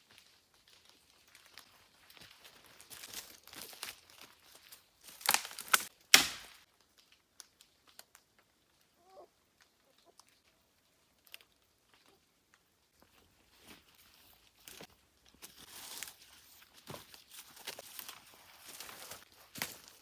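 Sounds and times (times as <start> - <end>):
footsteps on dry leaves: 0.0 - 5.9, 13.0 - 20.0.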